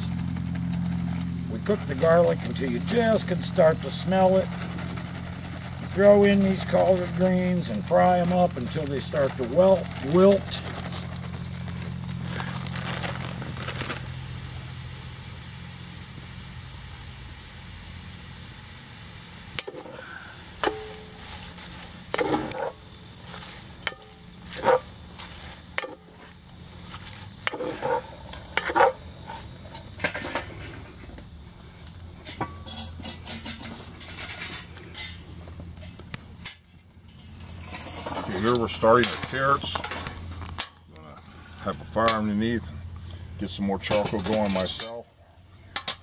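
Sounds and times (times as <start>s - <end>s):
greens sizzling: 0.0s - 46.0s
wooden spoon scraping a pot: 37.2s - 40.1s.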